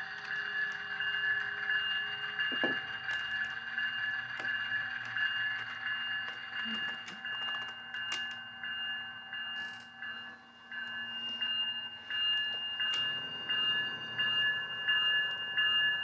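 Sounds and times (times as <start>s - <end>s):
wheels clicking on track: 0.0s - 8.7s, 12.2s - 16.0s
model train whine: 0.0s - 16.0s.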